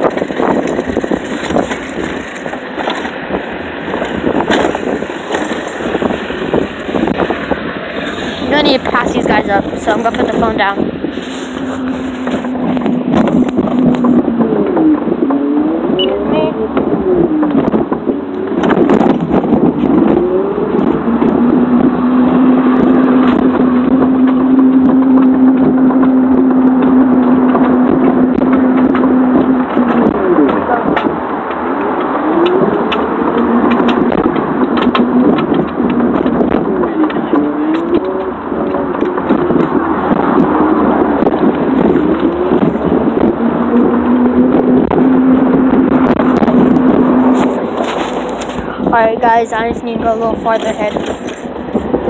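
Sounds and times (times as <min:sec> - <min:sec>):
scooter wheels rolling on concrete: 0:00.0 - 0:15.4, 0:27.1 - 0:52.0
cloth rubbing on microphone: 0:08.0 - 0:14.2, 0:47.0 - 0:48.7.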